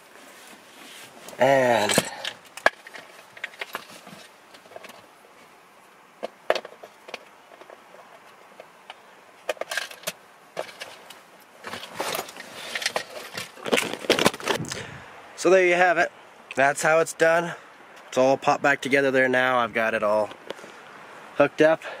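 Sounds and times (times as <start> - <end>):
handling rustle: 0.0 - 15.0.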